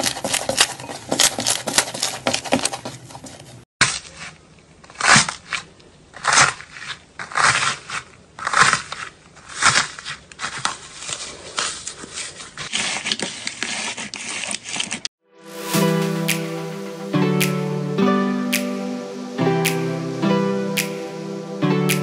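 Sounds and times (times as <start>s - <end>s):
music: 15.2s - 22.0s.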